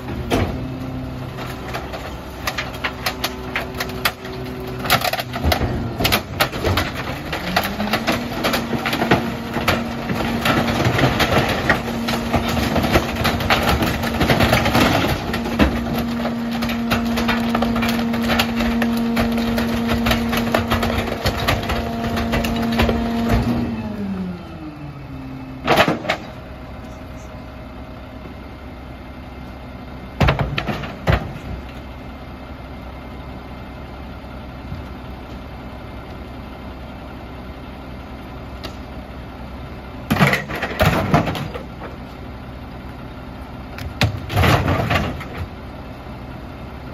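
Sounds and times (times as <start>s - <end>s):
junk crackling and snapping: 1.3s - 23.3s.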